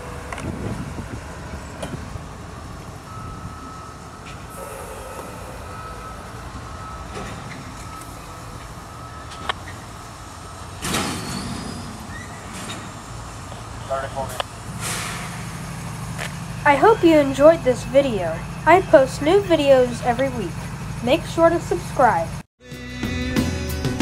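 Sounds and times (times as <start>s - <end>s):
thin steady whine: 0.0s - 14.7s
diesel locomotive engine rumble: 0.0s - 22.5s
burst of hiss: 14.7s - 15.5s.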